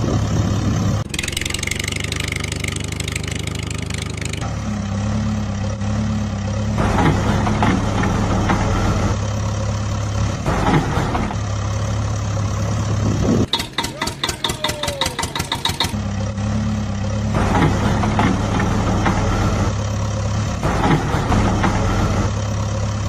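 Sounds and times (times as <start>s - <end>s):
diesel tractor engine idling: 0.0s - 23.0s.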